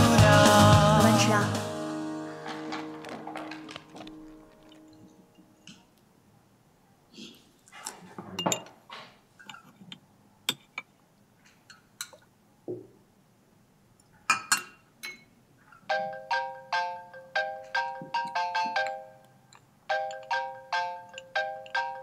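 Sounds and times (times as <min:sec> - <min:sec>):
chair scraping: 0:02.2 - 0:05.1
spoons clinking on bowls: 0:14.3 - 0:15.3, 0:17.6 - 0:22.0
phone ringtone melody: 0:15.9 - 0:19.2, 0:19.9 - 0:22.0.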